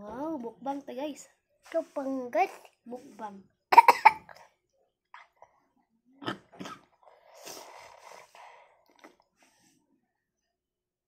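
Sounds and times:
toddler slurping soup: 0:06.2 - 0:09.3.

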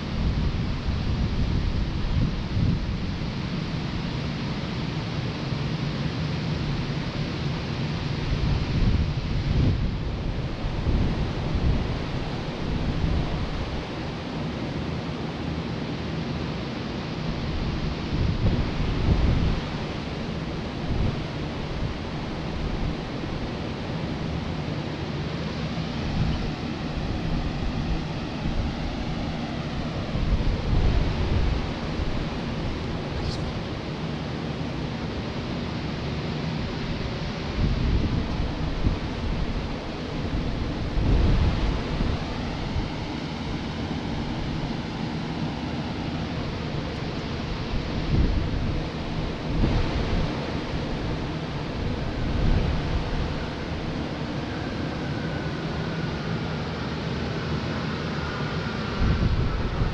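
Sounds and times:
wind buffeting microphone: 0:00.0 - 0:04.1, 0:08.0 - 0:14.4, 0:17.3 - 0:24.9, 0:25.9 - 0:33.9, 0:36.6 - 0:56.0, 0:58.6 - 0:59.9
electric fans blowing air: 0:00.0 - 0:59.9.

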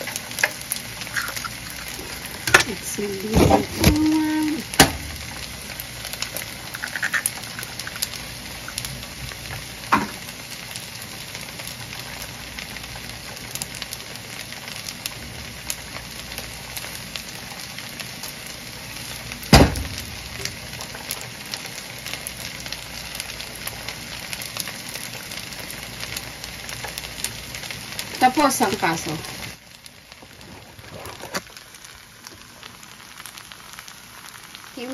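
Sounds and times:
fried rice sizzling in a pan: 0:00.0 - 0:34.9.

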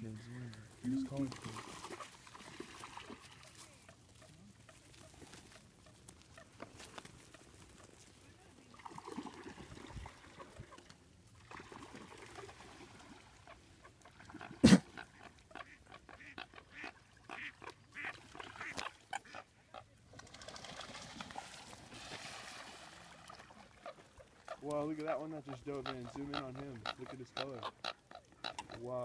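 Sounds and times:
coots calling: 0:00.0 - 0:08.3, 0:13.4 - 0:20.0, 0:23.7 - 0:29.0.

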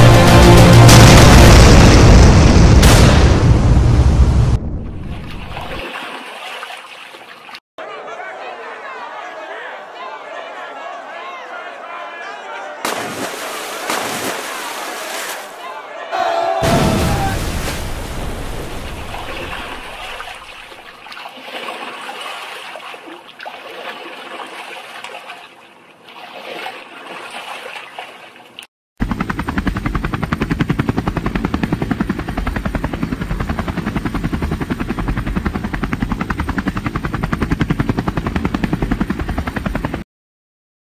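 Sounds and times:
waves washing: 0:12.8 - 0:15.6, 0:16.6 - 0:28.6
helicopter rotor chopping: 0:29.0 - 0:40.0.

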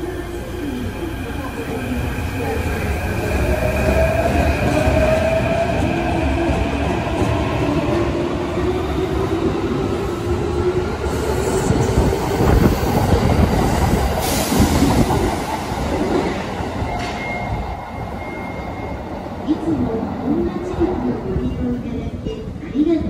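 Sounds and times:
train wheels clattering on rails: 0:12.4 - 0:17.6.

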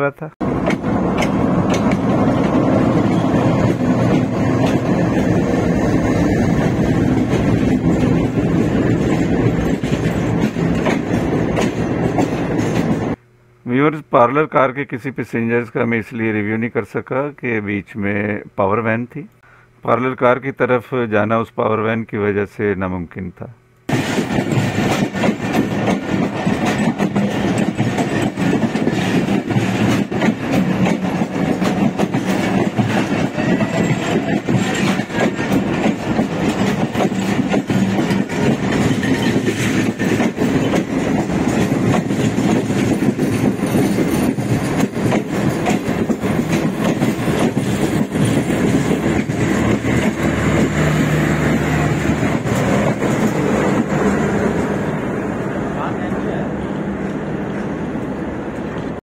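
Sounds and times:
carriages rattling: 0:00.4 - 0:13.2, 0:23.9 - 0:55.1
train wheels clattering: 0:00.4 - 0:13.2, 0:23.9 - 0:55.1.

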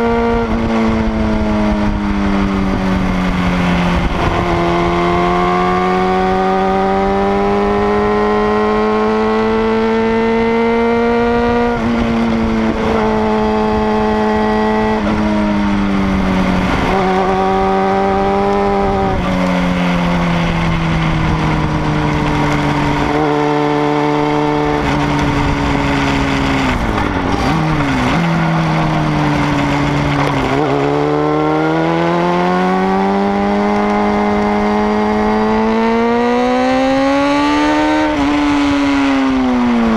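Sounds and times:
motorcycle engine revving: 0:00.0 - 0:39.9
road noise: 0:00.0 - 0:39.9
wind rushing: 0:10.6 - 0:32.2.

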